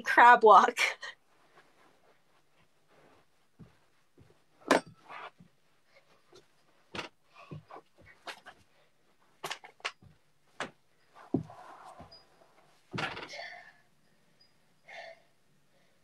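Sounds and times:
hands and feet thumping carpet: 0:01.3 - 0:13.2.

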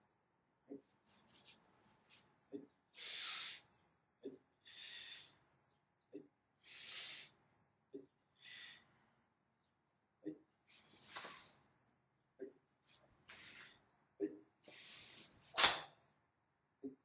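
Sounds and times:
hissing exhalations: 0:03.0 - 0:03.7, 0:06.6 - 0:07.3.

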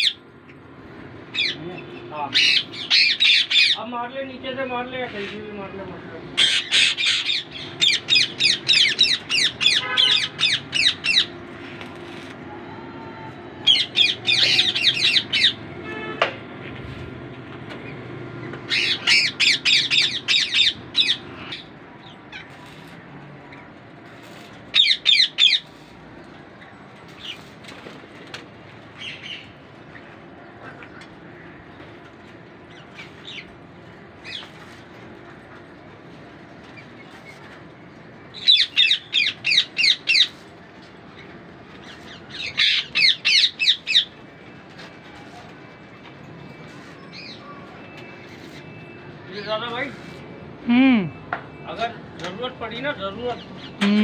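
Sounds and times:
parakeets squawking: 0:00.0 - 0:00.2, 0:01.3 - 0:03.9, 0:06.4 - 0:11.3, 0:13.6 - 0:15.6, 0:18.6 - 0:22.6, 0:24.6 - 0:25.7, 0:34.2 - 0:34.9, 0:38.3 - 0:40.4, 0:41.1 - 0:44.2.

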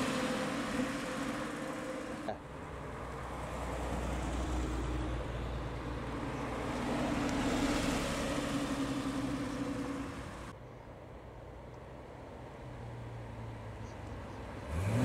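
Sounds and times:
cars driving past: 0:00.0 - 0:10.6, 0:11.8 - 0:15.0.

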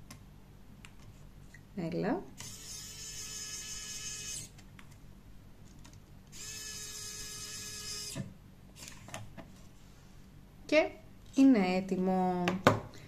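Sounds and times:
electric screwdriver motor whine: 0:02.4 - 0:04.5, 0:06.3 - 0:08.2.

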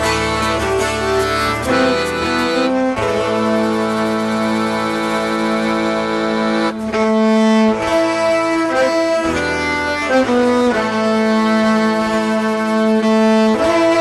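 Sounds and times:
accordion: 0:00.0 - 0:14.0
acoustic guitar: 0:00.0 - 0:14.0
cajon: 0:00.0 - 0:14.0
violin melody: 0:00.0 - 0:14.0.

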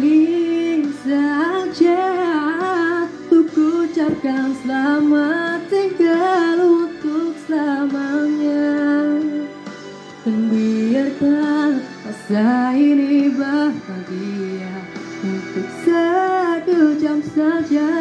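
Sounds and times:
man singing pop ballad: 0:10.2 - 0:18.0.

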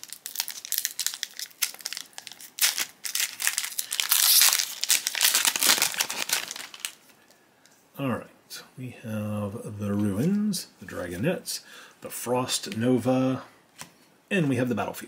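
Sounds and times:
foil pack being torn open: 0:00.0 - 0:07.0
foil wrapper crinkling: 0:00.0 - 0:07.4.

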